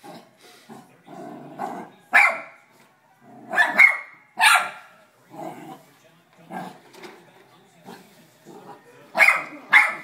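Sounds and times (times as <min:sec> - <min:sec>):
puppy barking: 0:02.1 - 0:02.6, 0:03.5 - 0:04.9, 0:09.1 - 0:10.0.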